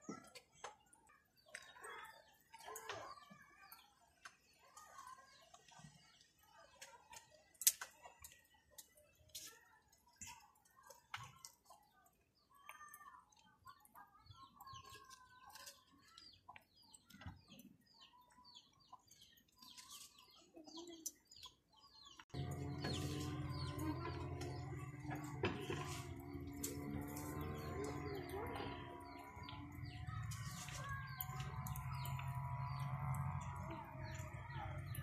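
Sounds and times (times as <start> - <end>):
bird calls chirping and clucking: 10.2 - 35.0.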